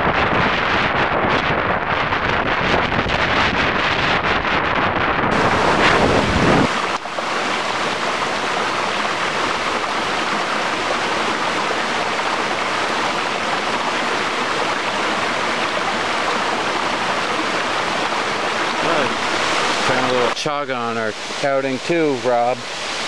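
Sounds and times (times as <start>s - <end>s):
wind buffeting microphone: 0.0s - 22.1s
water rushing down cascades: 5.3s - 23.0s.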